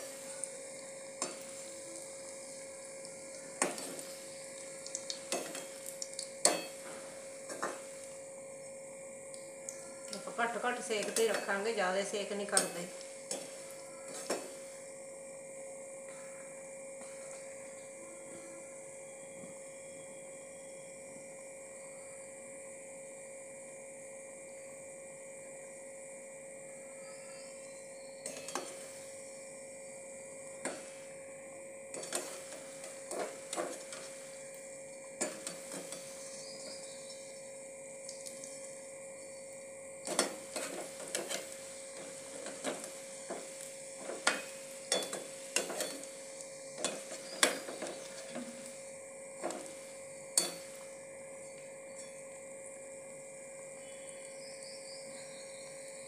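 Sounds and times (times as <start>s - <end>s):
dough frying in oil: 0.0s - 56.0s
steady hum: 0.0s - 56.0s
metal spoon scraping a pan: 31.9s - 34.2s, 40.1s - 46.1s, 46.8s - 48.4s.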